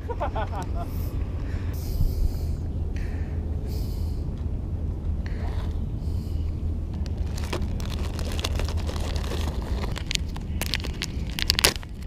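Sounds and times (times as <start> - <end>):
wind noise on microphone: 1.5 - 12.0
plastic box clicking and rattling: 7.0 - 11.9.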